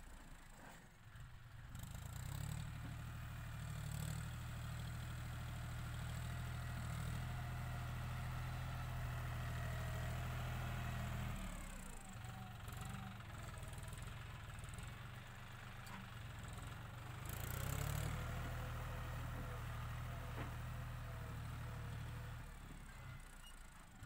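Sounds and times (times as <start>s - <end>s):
tractor diesel engine under load: 0.1s - 24.0s
dozer blade pushing soil: 15.8s - 22.8s.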